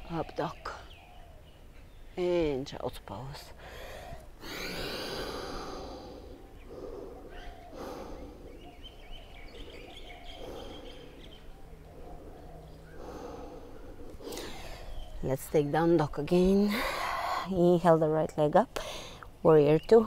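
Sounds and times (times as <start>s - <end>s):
person breathing heavily: 3.6s - 15.2s.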